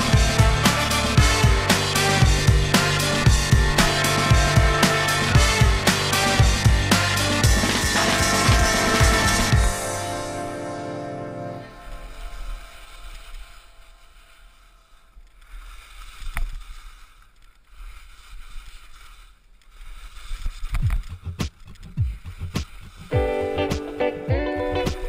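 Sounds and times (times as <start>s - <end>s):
thuds and buffeting rumbles: 0.0s - 10.0s, 20.7s - 23.3s
skis hissing over snow: 0.0s - 21.0s, 22.1s - 24.2s
wind rumbling on microphone: 11.6s - 23.4s.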